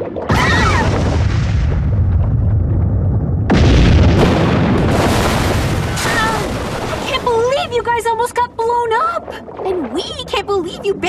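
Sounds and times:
cartoon explosion blast: 0:00.3 - 0:07.2
low rumble: 0:00.6 - 0:08.6.

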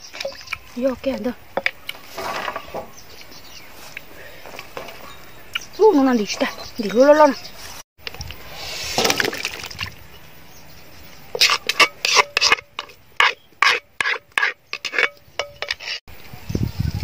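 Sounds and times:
spoon scraping metal tray: 0:11.3 - 0:16.0.

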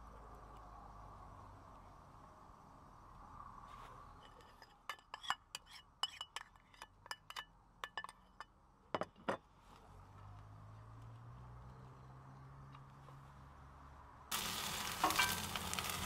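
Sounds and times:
metal spoon clinking in cup: 0:04.2 - 0:08.5.

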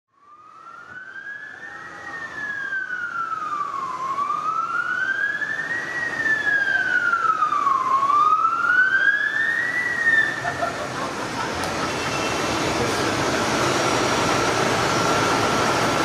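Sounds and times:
fire truck siren wailing: 0:00.1 - 0:16.0
road noise: 0:00.1 - 0:16.0.

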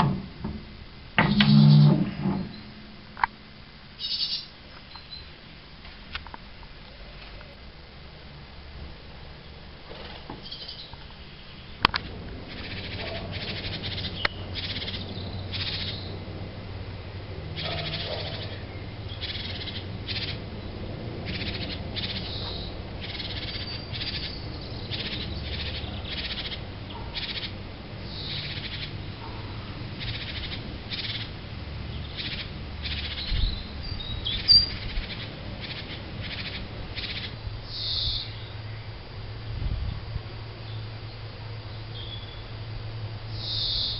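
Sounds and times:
sharp click: 0:01.2 - 0:02.6
birds making short high calls: 0:04.0 - 0:05.4, 0:10.4 - 0:11.8, 0:12.5 - 0:16.3, 0:17.5 - 0:38.9, 0:43.3 - 0:43.9.

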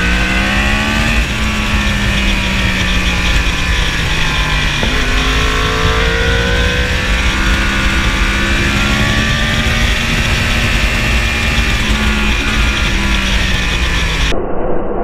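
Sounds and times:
motorcycle engine revving: 0:00.0 - 0:14.3
wind rush on camera: 0:00.0 - 0:14.8.

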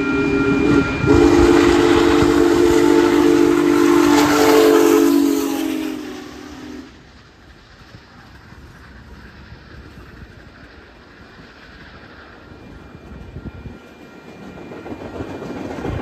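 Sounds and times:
steam whistle blasts: 0:00.0 - 0:07.0
rushing steam hiss: 0:00.0 - 0:16.0.

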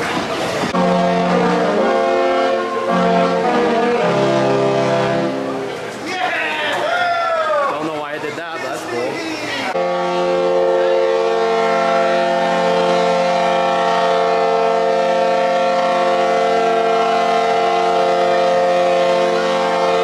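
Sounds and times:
ship horn blast: 0:00.1 - 0:05.9, 0:09.7 - 0:20.0.

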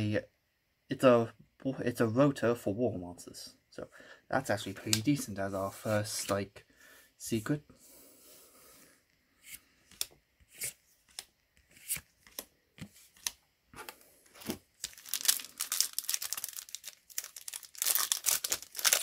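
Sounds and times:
foil wrapper crinkling and tearing: 0:14.3 - 0:19.0.

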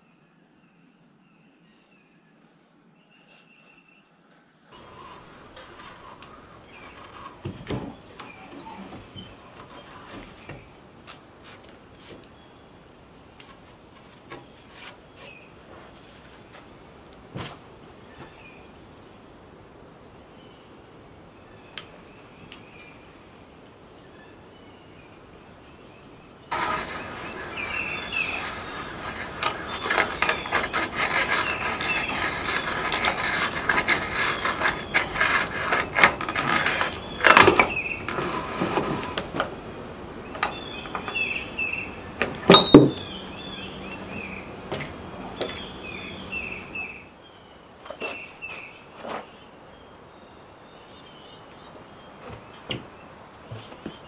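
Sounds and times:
hand drill boring into wood: 0:04.8 - 0:08.9, 0:26.5 - 0:39.2
birds chirping faintly: 0:04.8 - 0:54.0.

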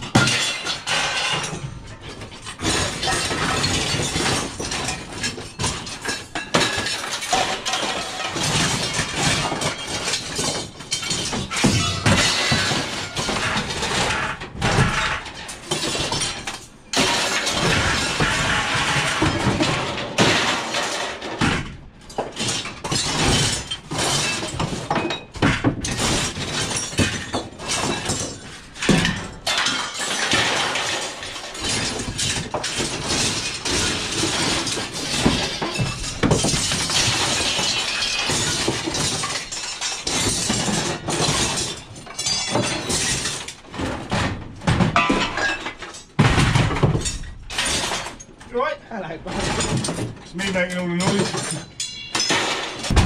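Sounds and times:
scrap metal clattering and crashing: 0:00.0 - 0:53.0.

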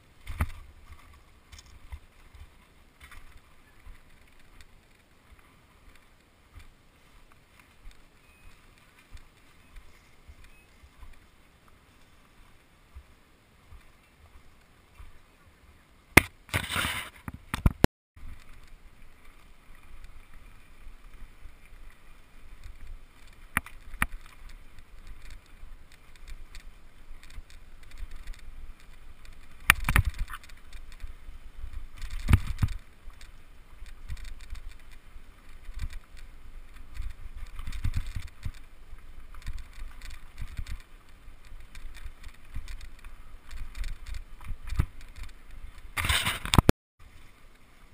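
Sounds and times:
bicycle tyres rumbling on gravel: 0:18.2 - 0:46.6
bike rattles and knocks: 0:22.6 - 0:31.1, 0:31.7 - 0:46.7.

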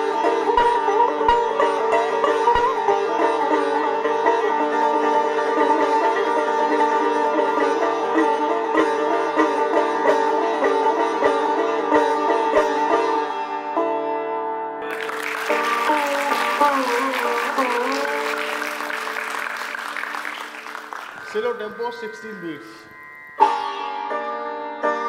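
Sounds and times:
sitar playing: 0:00.0 - 0:25.0
audience applause: 0:14.8 - 0:22.7.

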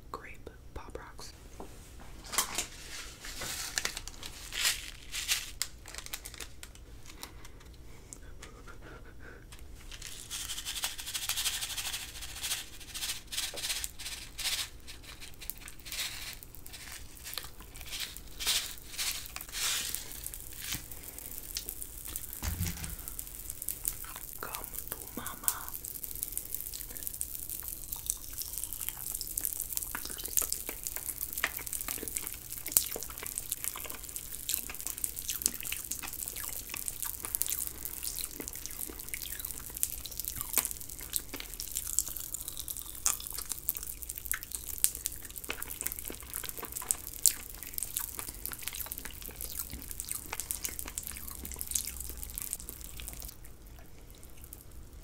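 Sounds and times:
wet mouth eating sounds: 0:20.4 - 0:54.8.

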